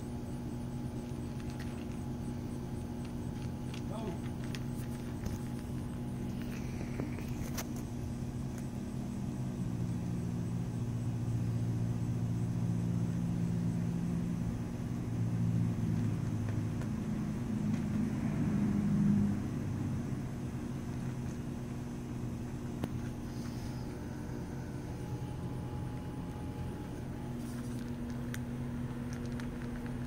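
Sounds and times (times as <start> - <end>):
low engine hum: 9.7 - 30.0.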